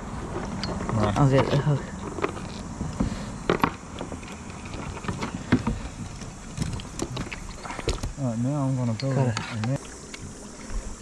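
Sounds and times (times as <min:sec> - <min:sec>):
steady background hiss: 0:00.0 - 0:11.0
knocks and clicks of gear: 0:00.3 - 0:08.2.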